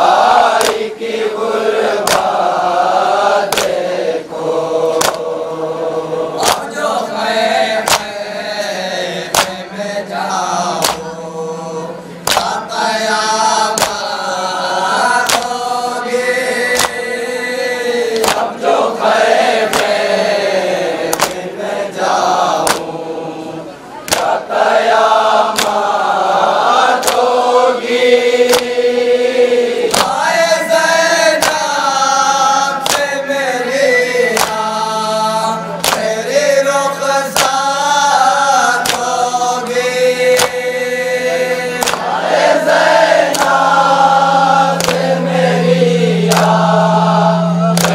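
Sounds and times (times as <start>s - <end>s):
man singing through loudspeaker: 0.0s - 23.8s, 24.4s - 47.9s
men singing in chorus: 0.0s - 47.9s
hands slapping chests: 0.5s - 0.9s, 1.8s - 2.5s, 3.4s - 3.9s, 4.9s - 5.3s, 6.4s - 6.8s, 7.8s - 8.2s, 9.3s - 9.6s, 10.8s - 11.1s, 12.2s - 12.6s, 13.7s - 14.1s, 15.2s - 15.6s, 16.7s - 17.0s, 18.1s - 18.6s, 19.6s - 20.1s, 21.0s - 21.5s, 22.6s - 22.9s, 24.0s - 24.4s, 25.5s - 25.9s, 27.0s - 27.3s, 28.4s - 28.8s, 29.9s - 30.2s, 31.4s - 31.7s, 32.8s - 33.2s, 34.1s - 34.7s, 35.7s - 36.2s, 37.3s - 37.7s, 38.8s - 39.2s, 40.3s - 40.6s, 41.8s - 42.2s, 43.2s - 43.8s, 44.7s - 45.3s, 46.3s - 46.7s.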